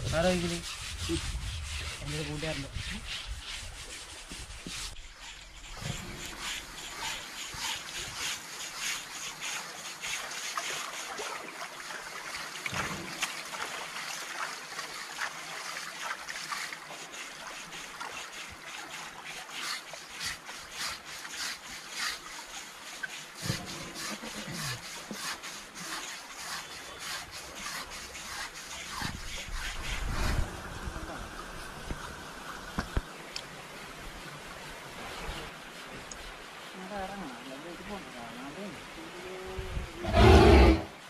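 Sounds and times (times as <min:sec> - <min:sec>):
scrubbing elephant hide: 0:00.0 - 0:31.2
water splashing and trickling: 0:00.0 - 0:40.0.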